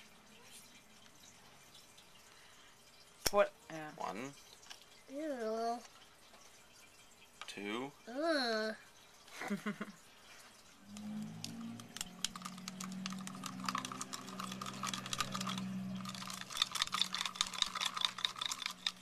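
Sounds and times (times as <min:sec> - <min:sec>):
low steady hum: 0:07.9 - 0:19.0
plastic parts clicking: 0:11.0 - 0:19.0.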